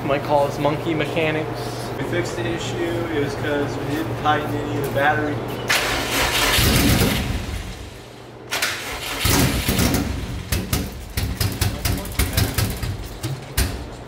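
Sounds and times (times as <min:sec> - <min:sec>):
car engine cranking on starter: 0:05.7 - 0:07.8, 0:08.5 - 0:10.6.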